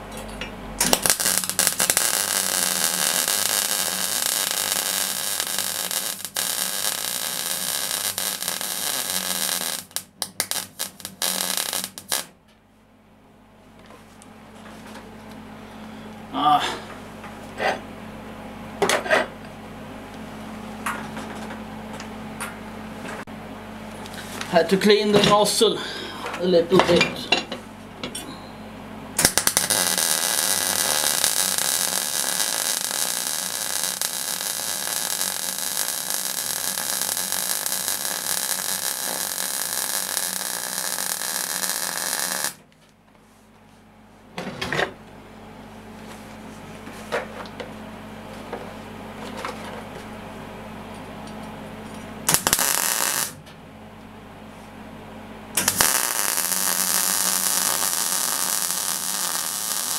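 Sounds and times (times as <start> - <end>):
low hum with clicks: 0.0 - 2.0, 7.6 - 29.6, 42.6 - 55.8
welding arc crackling: 0.8 - 12.4, 29.2 - 42.6, 52.2 - 53.4, 55.6 - 59.9.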